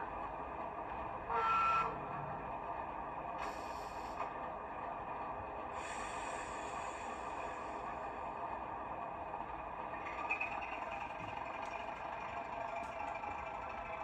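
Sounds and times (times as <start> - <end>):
model locomotive engine idling: 0.0 - 14.0
hiss: 3.4 - 4.2, 5.7 - 8.3.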